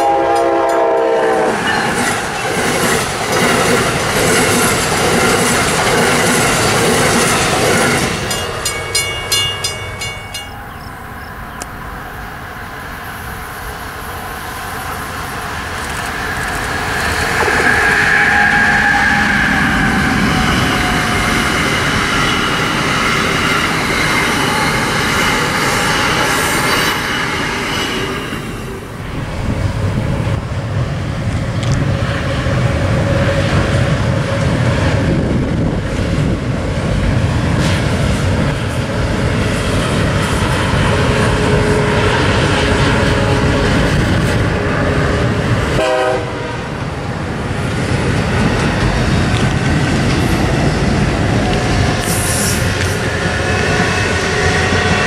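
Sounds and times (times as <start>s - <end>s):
train horn blast: 0.0s - 1.7s, 17.4s - 21.4s, 40.9s - 46.8s
train horn chord: 0.0s - 1.7s, 41.3s - 43.8s, 44.5s - 46.7s
train wheels rumbling on rail: 0.0s - 55.0s.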